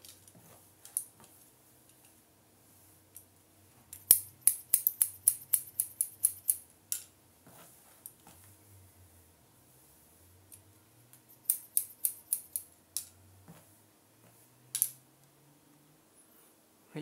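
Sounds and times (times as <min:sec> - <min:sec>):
faint comb clicks: 0:03.9 - 0:06.6, 0:11.4 - 0:13.1
scissors snipping hair: 0:04.0 - 0:06.6, 0:11.3 - 0:12.7.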